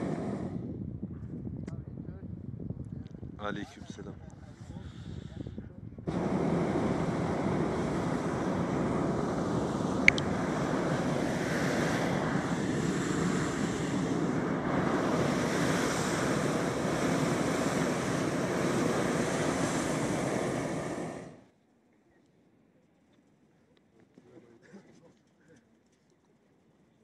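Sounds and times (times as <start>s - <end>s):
propane burner blast: 0.0s - 0.9s, 4.6s - 21.5s.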